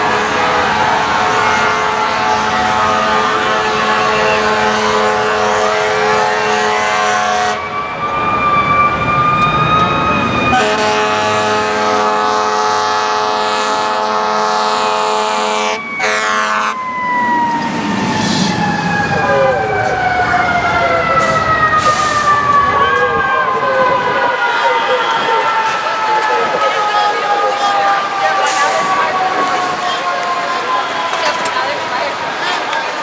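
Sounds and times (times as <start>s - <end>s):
air horn blasts: 0.0s - 7.6s, 10.5s - 16.8s
fire truck sirens wailing: 0.0s - 33.0s.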